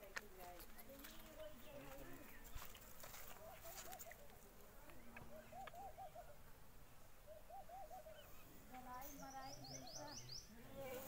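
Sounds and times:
bird cooing calls: 0:03.2 - 0:06.6, 0:07.2 - 0:10.4.

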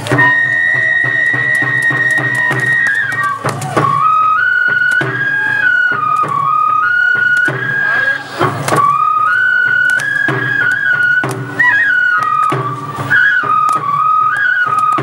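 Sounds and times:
flute melody: 0:00.0 - 0:15.0
taiko drum strokes: 0:00.0 - 0:15.0.

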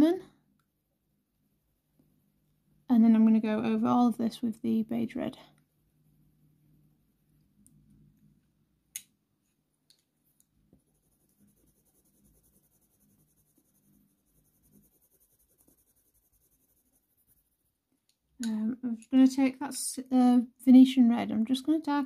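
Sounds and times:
pencil scratching on paper: 0:10.8 - 0:17.8.

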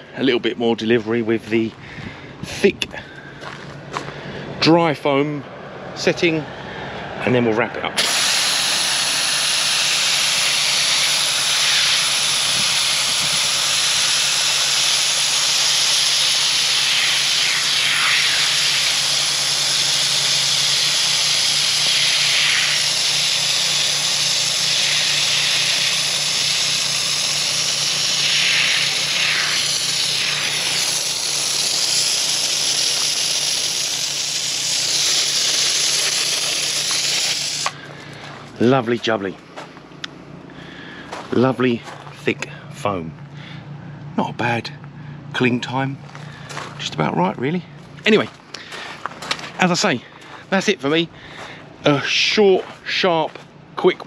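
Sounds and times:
pressure sprayer spraying foam: 0:08.0 - 0:37.8.

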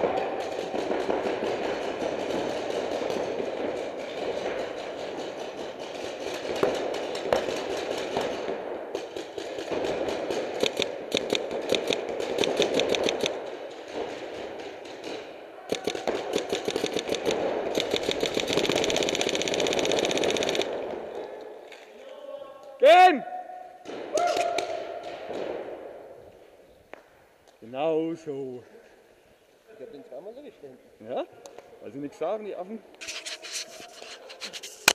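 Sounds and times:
paintball markers firing: 0:00.0 - 0:21.2
steady background noise: 0:00.0 - 0:34.9.

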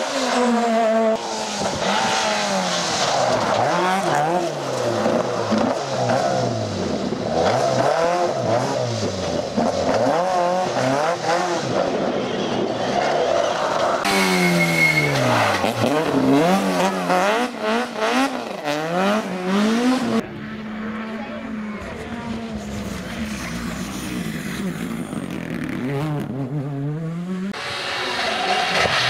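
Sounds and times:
rally car engine revving: 0:00.0 - 0:29.0.

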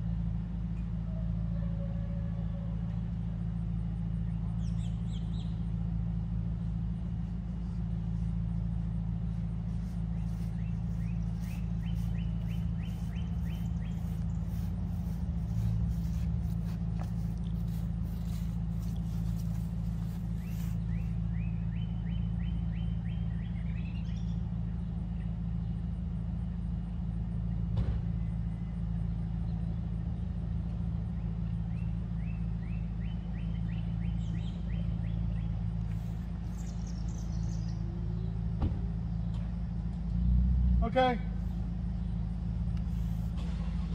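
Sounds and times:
low machine hum: 0:00.0 - 0:43.9
bird singing: 0:04.1 - 0:05.9, 0:09.7 - 0:25.8, 0:31.0 - 0:39.6.

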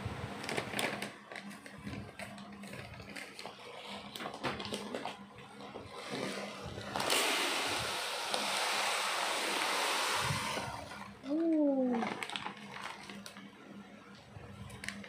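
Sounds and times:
plastic bag crinkling: 0:00.4 - 0:05.2, 0:11.3 - 0:13.5.

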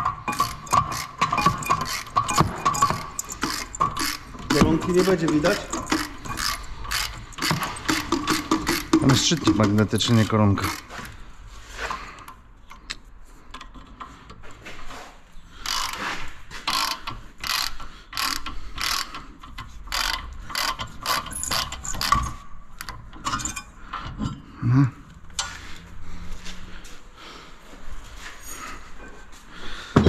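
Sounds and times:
ratchet wrench clicking: 0:00.0 - 0:11.0, 0:15.6 - 0:23.6.

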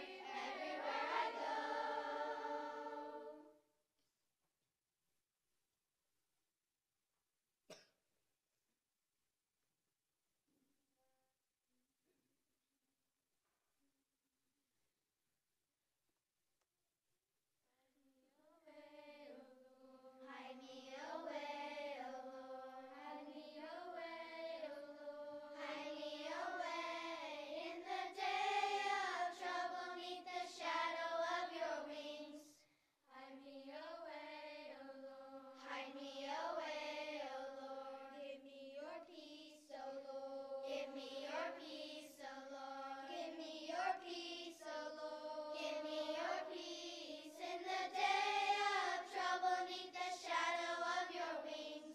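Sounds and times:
children's choir singing: 0:00.0 - 0:03.6, 0:18.6 - 0:51.9.

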